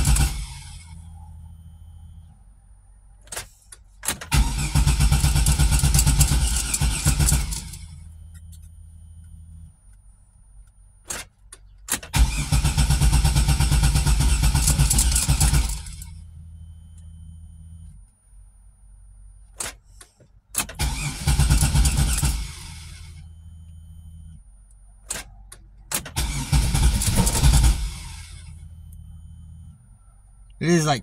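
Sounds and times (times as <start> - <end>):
car starter cranking: 0.0 - 1.1, 3.2 - 8.8, 11.0 - 16.2, 19.5 - 23.2, 25.0 - 29.1
low steady hum: 0.0 - 4.6, 5.7 - 12.3, 14.9 - 20.6, 22.5 - 25.9, 27.0 - 31.0.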